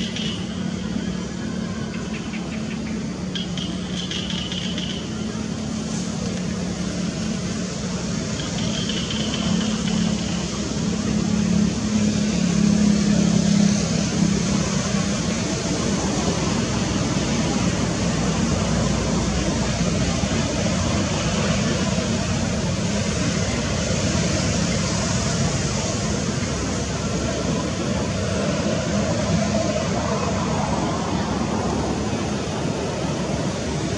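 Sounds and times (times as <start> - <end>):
steady rushing noise: 0.0 - 33.9
vehicle engine hum: 0.0 - 33.9.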